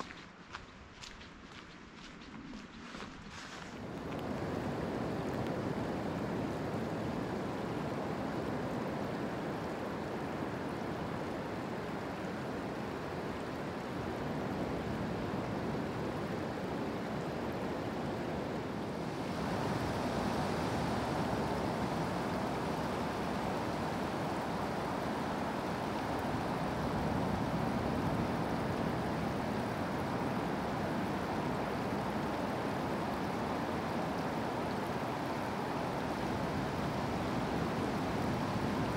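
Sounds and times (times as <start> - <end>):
creek water running over gravel: 0.0 - 6.2.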